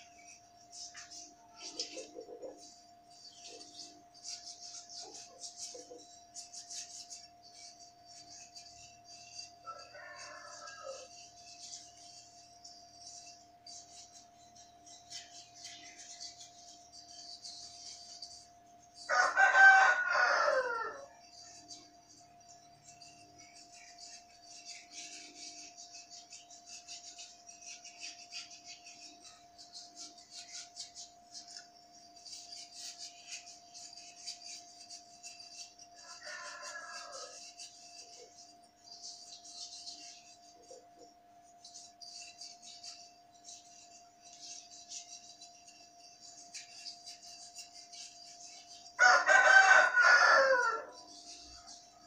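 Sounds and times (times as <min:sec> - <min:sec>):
faint steady hum: 0:00.0 - 0:52.0
rooster crowing: 0:09.6 - 0:11.3, 0:19.1 - 0:21.3, 0:35.9 - 0:38.2, 0:49.0 - 0:51.2
wet rubbing strokes: 0:22.9 - 0:40.5.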